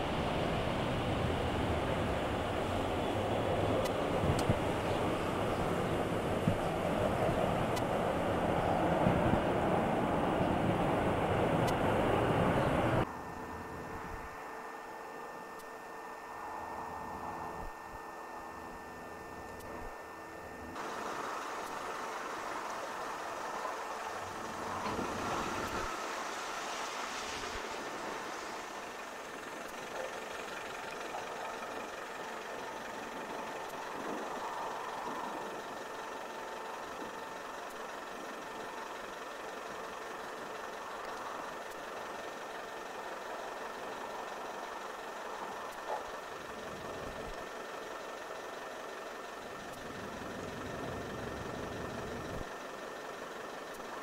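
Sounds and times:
distant jet engines rushing: 0:00.0 - 0:14.2, 0:20.7 - 0:39.2.

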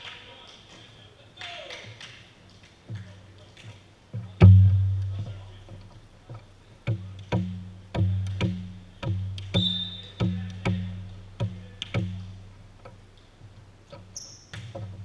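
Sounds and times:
ball bouncing on wooden floor: 0:04.2 - 0:13.0.

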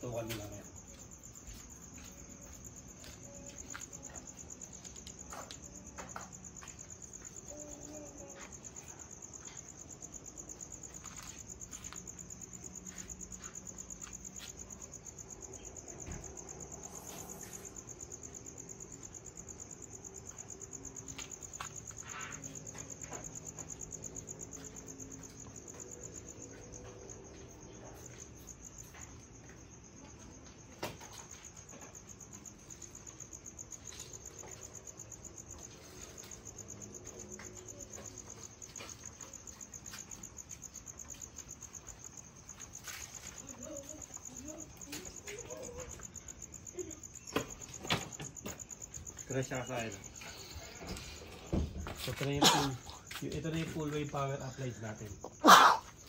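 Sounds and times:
cricket trilling: 0:00.0 - 0:56.0.

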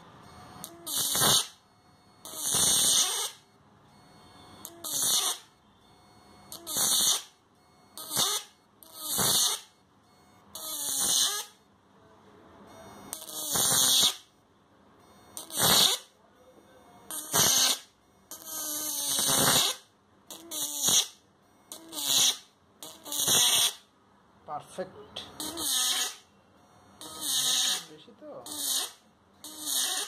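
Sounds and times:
electric sparks crackling and buzzing: 0:00.6 - 0:01.6, 0:02.3 - 0:03.4, 0:04.6 - 0:05.4, 0:06.5 - 0:07.3, 0:08.0 - 0:09.7, 0:10.6 - 0:11.5, 0:13.1 - 0:14.2, 0:15.4 - 0:16.1, 0:17.1 - 0:23.8, 0:25.4 - 0:26.2, 0:27.0 - 0:27.9, 0:28.5 - 0:30.0.

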